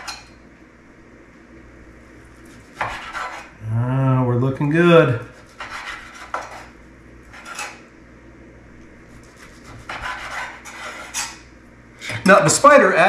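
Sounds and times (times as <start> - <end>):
utensils clinking on dishes: 0.0 - 0.4
knife scraping a cutting board: 2.4 - 3.6, 5.3 - 7.9, 9.1 - 11.5.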